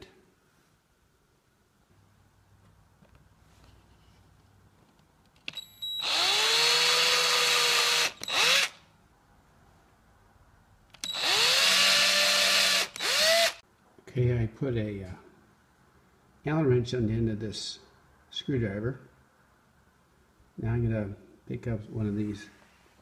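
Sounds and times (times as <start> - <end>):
cordless drill drilling into rubber: 6.0 - 8.8, 11.0 - 13.6.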